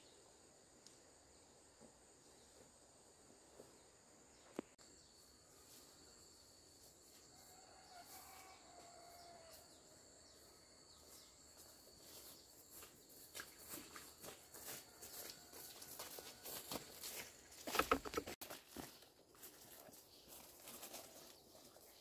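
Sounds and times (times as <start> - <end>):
footsteps rustling through undergrowth: 11.0 - 22.0.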